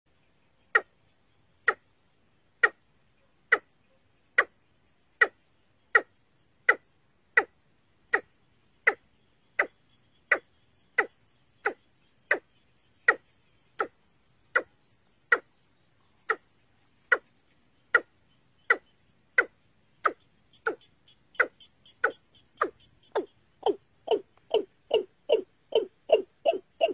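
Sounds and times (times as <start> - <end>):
bird calling sharp notes: 18.7 - 26.9.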